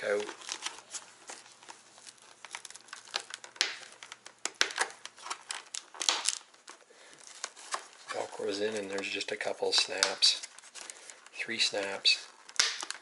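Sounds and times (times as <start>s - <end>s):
helmet liner rustling and crinkling: 0.0s - 13.0s.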